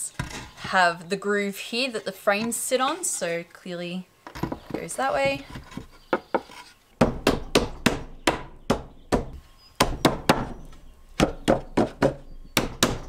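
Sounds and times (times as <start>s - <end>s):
wooden knocks: 4.3s - 10.6s.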